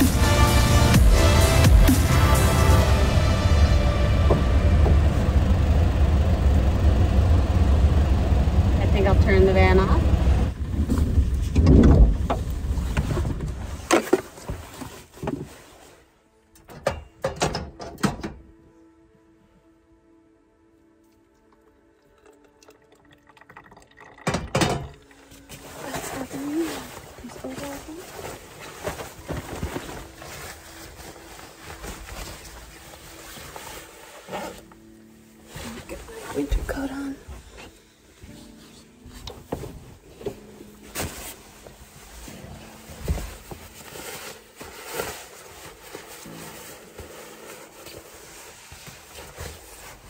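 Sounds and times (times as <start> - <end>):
rustling and knocking in van: 0.0 - 7.1, 10.4 - 16.0, 16.6 - 18.6, 24.2 - 50.0
shuffling movement: 10.6 - 16.3, 25.4 - 50.0.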